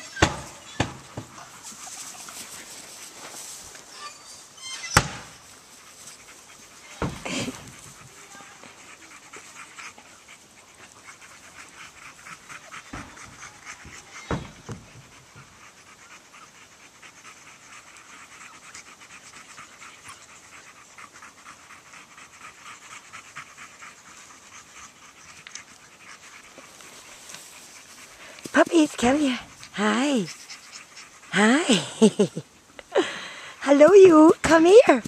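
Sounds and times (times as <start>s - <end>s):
puppy panting: 0.0s - 35.0s
thumps: 5.0s - 5.4s.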